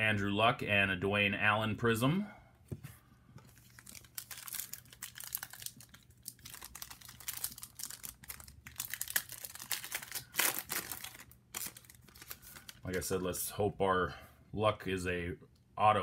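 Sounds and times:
foil wrapper crinkling: 0:03.5 - 0:13.2.

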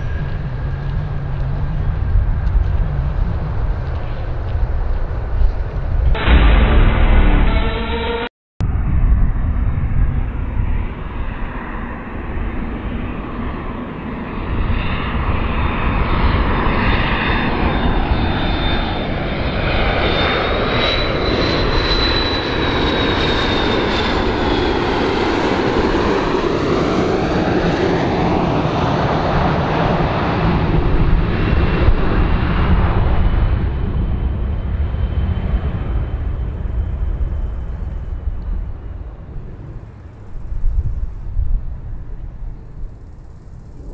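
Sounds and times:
airplane engines roaring past: 0:00.0 - 0:43.9
high engine whine: 0:05.7 - 0:10.9, 0:32.6 - 0:43.9.

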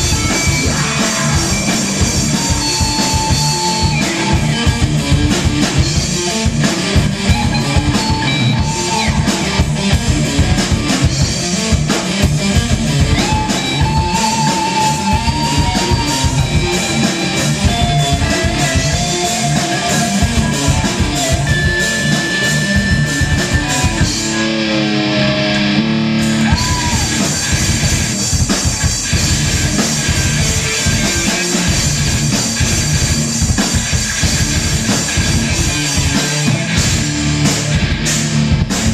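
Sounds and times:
drum kit fast beat: 0:00.0 - 0:24.5, 0:26.2 - 0:38.9
bass guitar: 0:00.0 - 0:38.9
distorted electric guitars: 0:00.0 - 0:38.9.

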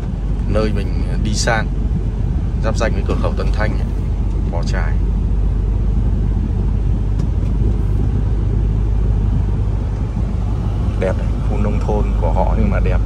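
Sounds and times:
truck engine rumble: 0:00.0 - 0:13.0.

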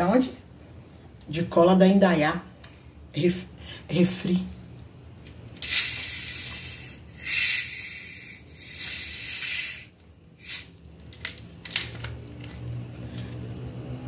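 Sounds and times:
carbonation gas hissing: 0:05.6 - 0:10.9.

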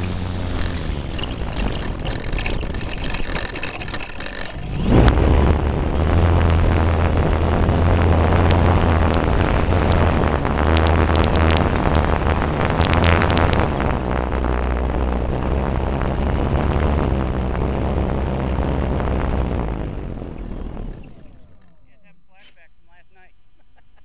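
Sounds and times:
sharp clicks and knocks: 0:00.0 - 0:05.2, 0:08.4 - 0:13.9
wind rumble on microphone: 0:00.0 - 0:21.5
model plane motor humming: 0:00.0 - 0:21.9.

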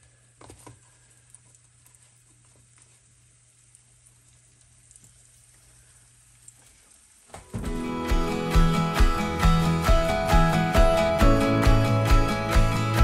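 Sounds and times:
fish frying in oil: 0:00.0 - 0:07.7
small ticks: 0:00.8 - 0:06.8.

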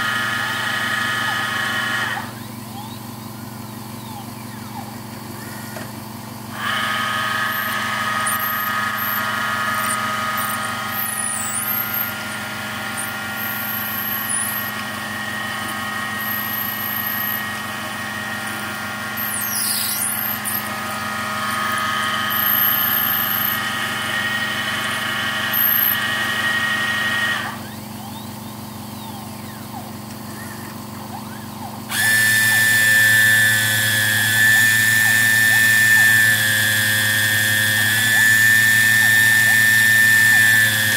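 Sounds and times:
lathe motor whine: 0:00.0 - 0:40.9
low hum: 0:01.2 - 0:26.4
high whine with hiss: 0:32.0 - 0:40.9.

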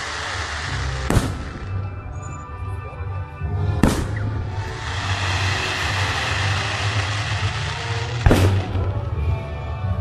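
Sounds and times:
fireworks hiss: 0:00.0 - 0:01.9, 0:03.8 - 0:09.2
firework bang: 0:01.0 - 0:01.8, 0:03.8 - 0:09.1.

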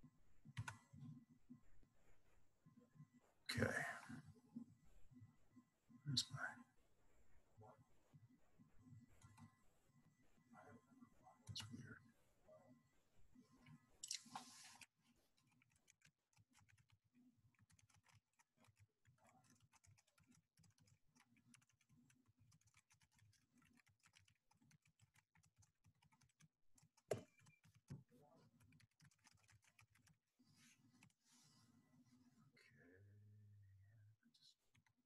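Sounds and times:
keyboard typing: 0:00.4 - 0:01.2, 0:13.6 - 0:30.2.

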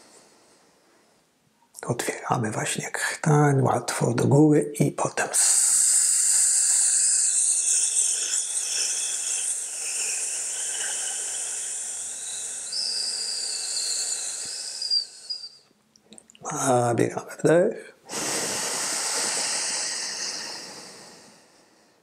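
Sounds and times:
long hissed breath: 0:00.0 - 0:01.2, 0:05.4 - 0:15.6, 0:18.1 - 0:22.0.

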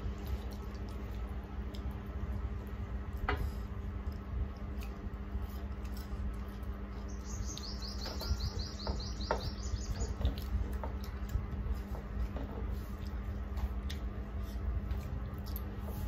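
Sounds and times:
fingers mixing food on plates: 0:00.0 - 0:16.0
bird trilling: 0:07.1 - 0:10.2.

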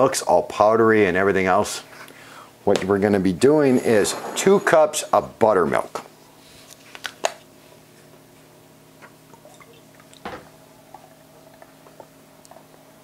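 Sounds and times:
liquid glugging into cup: 0:09.2 - 0:12.6.

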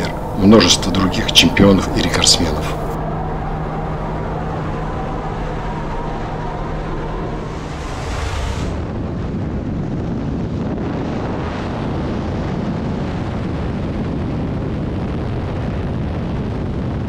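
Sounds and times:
propeller engine: 0:00.0 - 0:09.1
wind rushing: 0:00.0 - 0:14.2.

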